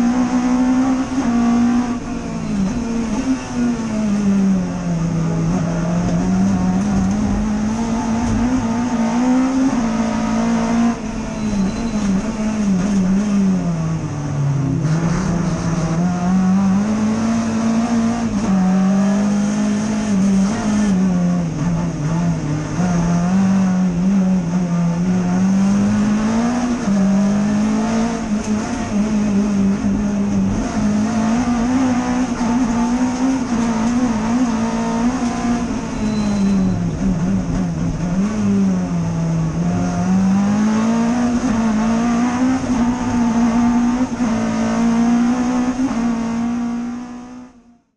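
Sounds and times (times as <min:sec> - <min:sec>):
race engine revving hard: 0:14.8 - 0:35.9, 0:36.8 - 0:47.5.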